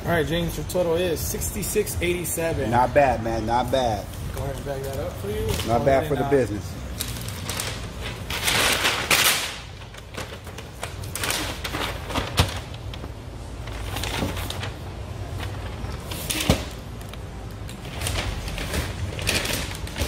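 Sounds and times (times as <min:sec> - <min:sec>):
paper bag rustling and crinkling: 0:03.7 - 0:20.0.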